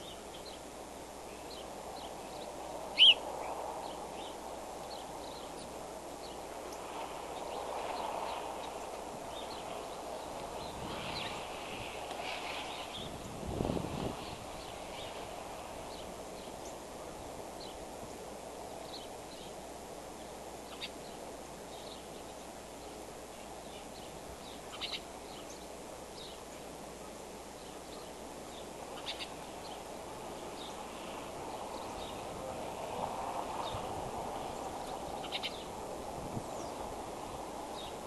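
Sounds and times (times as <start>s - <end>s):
high bird chirps: 3.0s - 3.2s.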